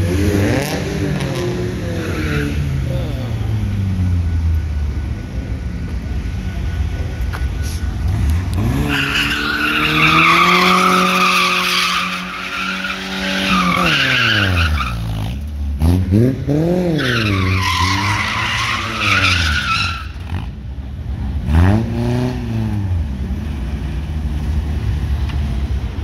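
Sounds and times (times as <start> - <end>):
tyres squealing: 17.0 - 20.3.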